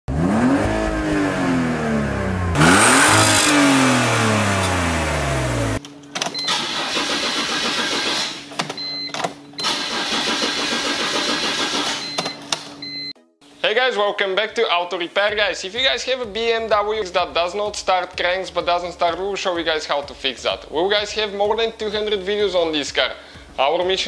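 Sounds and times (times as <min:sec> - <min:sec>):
car engine revving: 0:00.1 - 0:05.8.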